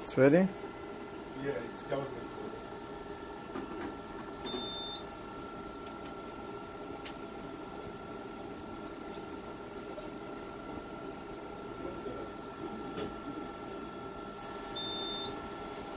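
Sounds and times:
laser machine humming: 0.0 - 15.9.

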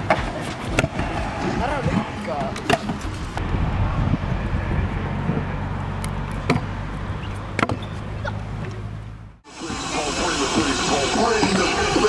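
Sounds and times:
scooter wheels rolling on concrete: 0.0 - 3.6, 9.6 - 12.0
scooter deck clacking on concrete: 1.8 - 3.2.

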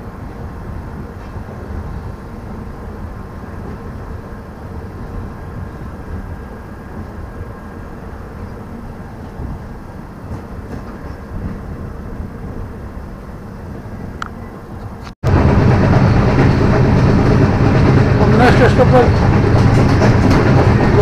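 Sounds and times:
train rumbling along track: 0.0 - 21.0.

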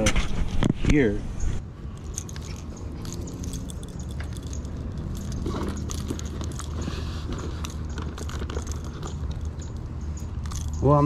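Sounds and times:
handling rustle: 1.8 - 11.0.

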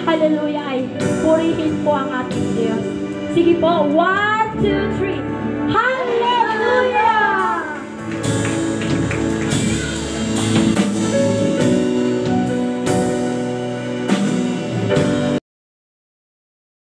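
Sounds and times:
keyboard chords: 0.0 - 15.4
electric guitar chords: 4.5 - 15.4
drum kit strikes: 8.0 - 15.4.

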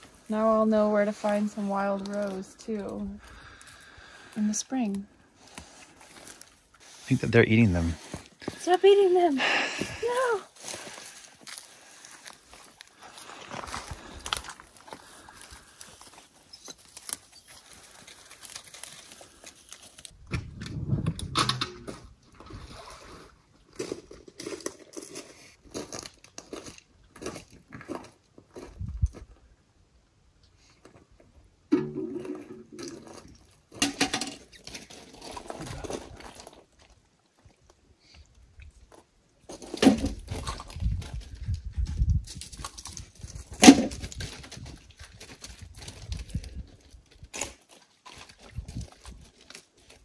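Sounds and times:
footsteps on gravel and shells: 9.8 - 20.2, 23.7 - 29.5.

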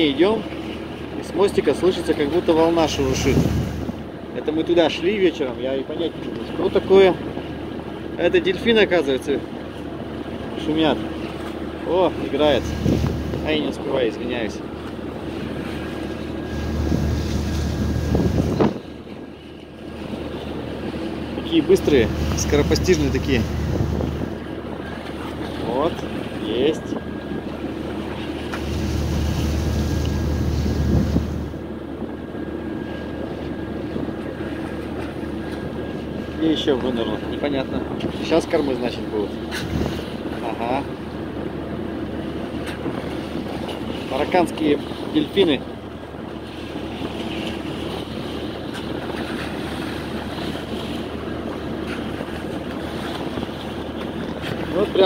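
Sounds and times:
ship machinery hum: 0.0 - 55.0
water rushing along hull: 0.0 - 55.0
wind buffeting microphone: 2.5 - 4.3, 12.4 - 13.8, 14.7 - 55.0.

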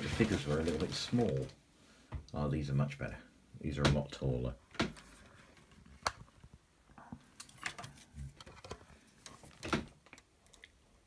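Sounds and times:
plastic frames clicking and knocking: 3.8 - 6.5, 7.4 - 10.3.

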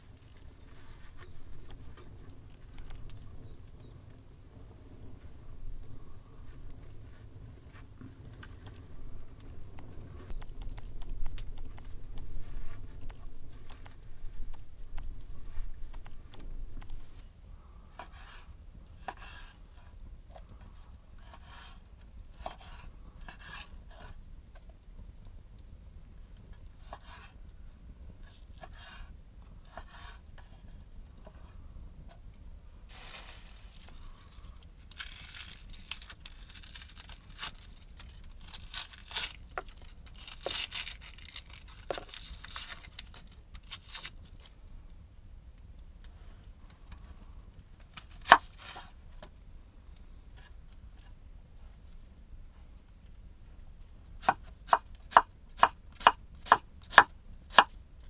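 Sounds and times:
onion skin crinkling: 32.9 - 44.6, 47.8 - 49.0.

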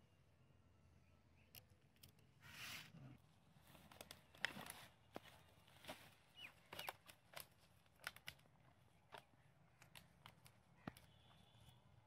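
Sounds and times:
light rustling of leaves: 2.4 - 11.8.

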